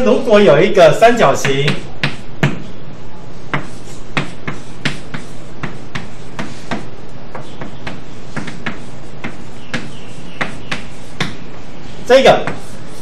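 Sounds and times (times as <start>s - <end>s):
chalk tapping on blackboard: 1.4s - 2.7s, 3.5s - 11.6s, 12.2s - 13.0s.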